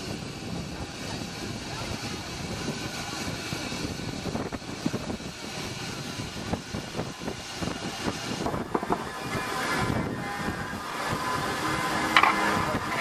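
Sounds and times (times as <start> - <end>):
steam engine running: 0.0 - 13.0.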